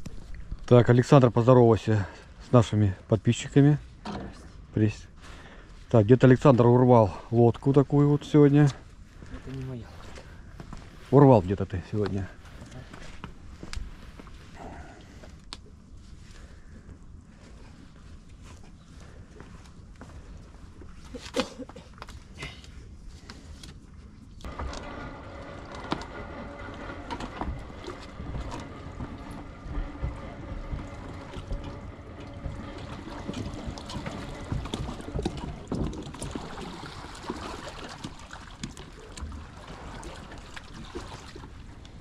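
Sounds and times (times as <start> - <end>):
steady whining tone: 24.5 - 36.2
boat trailer rattling and knocking: 24.5 - 40.6.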